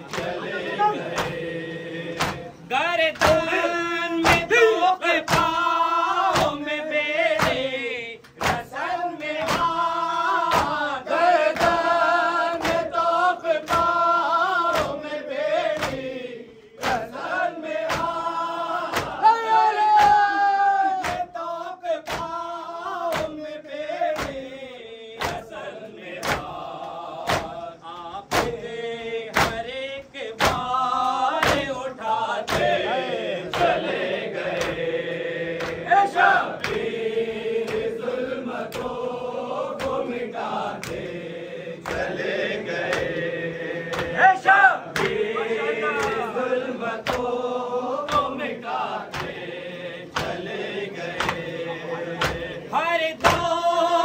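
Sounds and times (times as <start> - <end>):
men chanting a lament: 0.0 - 54.0
hands striking chests: 45.0 - 46.4.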